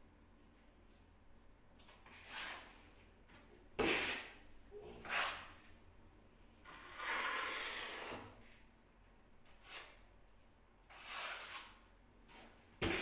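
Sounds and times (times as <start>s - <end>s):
hand scraping and rubbing tiled wall: 1.8s - 5.7s, 6.6s - 8.7s, 9.4s - 10.2s, 10.8s - 13.0s.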